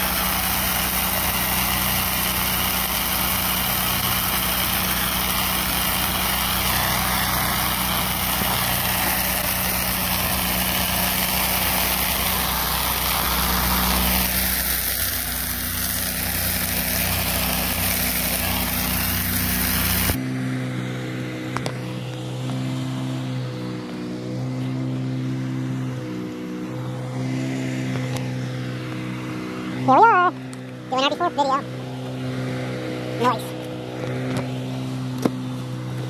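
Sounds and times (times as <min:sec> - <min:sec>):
water spraying hiss: 0:00.0 - 0:20.2
pressure washer engine running: 0:00.0 - 0:36.0.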